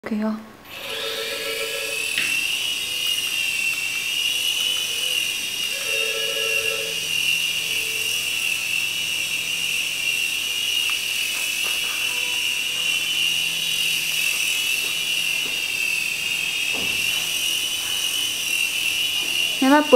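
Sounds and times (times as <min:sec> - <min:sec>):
toy helicopter motor whine: 0:00.7 - 0:19.9.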